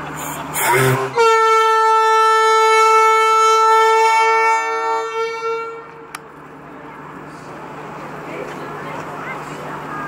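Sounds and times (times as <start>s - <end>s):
boat horn blast: 0.5s - 6.1s.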